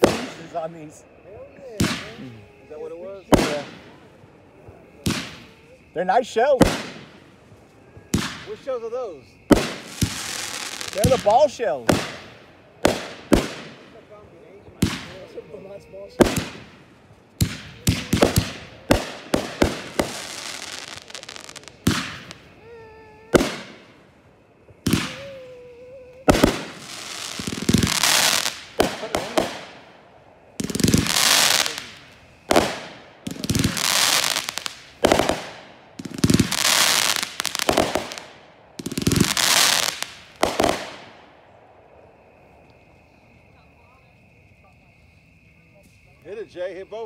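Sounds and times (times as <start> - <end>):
fireworks bangs: 0.0 - 41.7
fireworks crackling hiss: 0.0 - 47.0.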